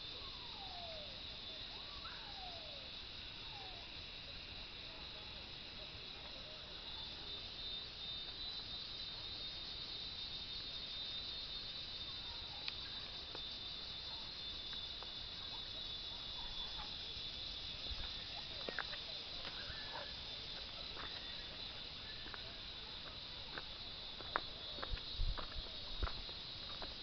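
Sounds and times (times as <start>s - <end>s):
insect chorus drone: 0.0s - 27.0s.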